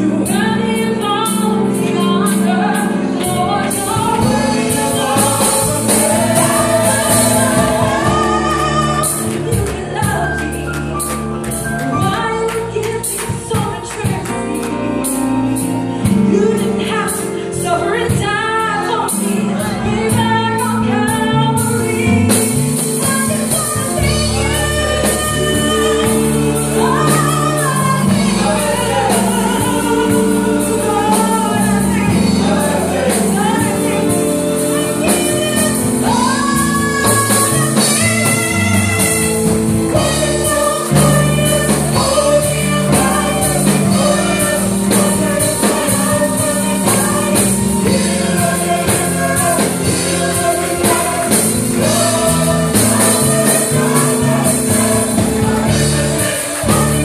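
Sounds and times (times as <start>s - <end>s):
instrumental accompaniment with beat: 0.0s - 57.0s
woman singing lead: 0.0s - 57.0s
men singing harmonies: 3.6s - 9.6s, 23.1s - 57.0s.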